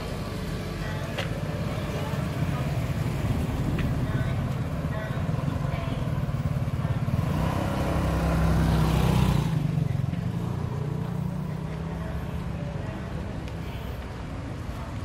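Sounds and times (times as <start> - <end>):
traffic hum: 0.0 - 15.0
vehicle passing by: 6.2 - 14.0.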